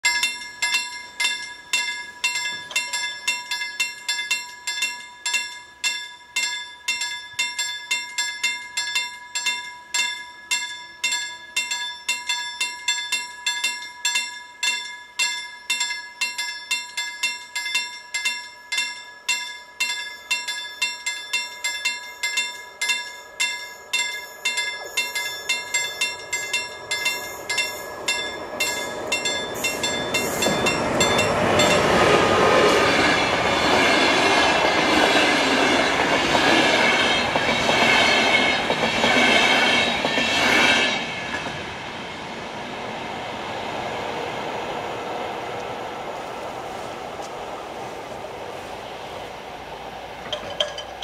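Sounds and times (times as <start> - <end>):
level crossing warning bell: 0.0 - 41.0, 50.2 - 51.0.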